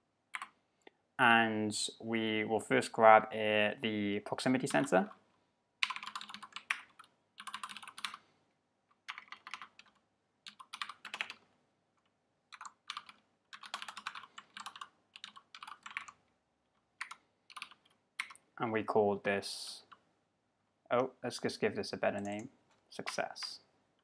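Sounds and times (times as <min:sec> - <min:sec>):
typing on computer keyboard: 0:00.4 - 0:00.6, 0:05.8 - 0:08.2, 0:09.0 - 0:11.4, 0:12.5 - 0:16.2, 0:17.0 - 0:18.4.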